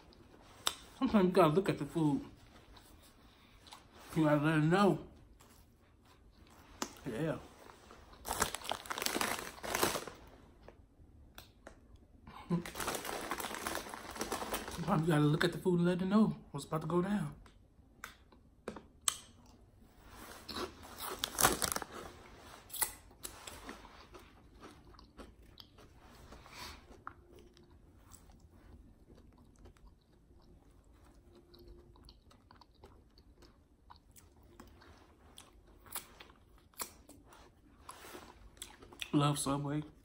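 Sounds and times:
person crunching chips: 0:08.1 - 0:10.3, 0:12.4 - 0:15.1, 0:20.2 - 0:26.0.

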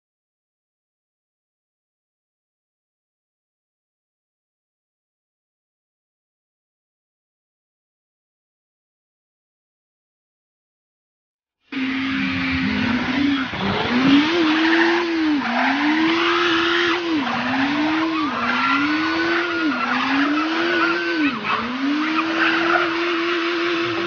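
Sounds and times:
car engine revving hard: 0:11.8 - 0:24.0
tyres spinning on dirt: 0:12.5 - 0:24.0.

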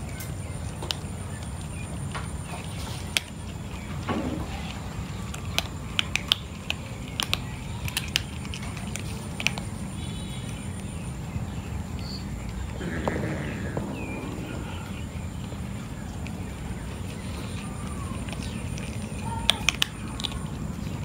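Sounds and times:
cat crunching dry kibble: 0:02.4 - 0:11.0, 0:12.5 - 0:21.0
low background rumble: 0:10.9 - 0:21.0.

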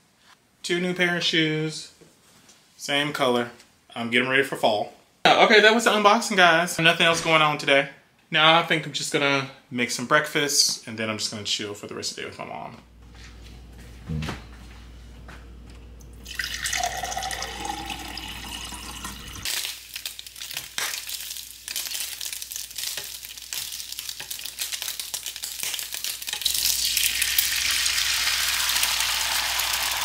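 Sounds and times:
water poured into a glass: 0:16.2 - 0:19.5
bacon sizzling in a frying pan: 0:19.4 - 0:30.0
egg whites hissing in hot pan: 0:23.2 - 0:30.0.

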